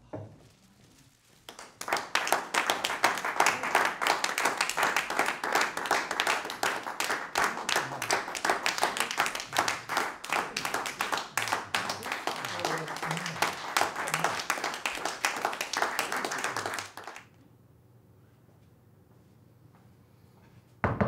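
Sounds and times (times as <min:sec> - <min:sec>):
people clapping hands: 0:01.4 - 0:17.3.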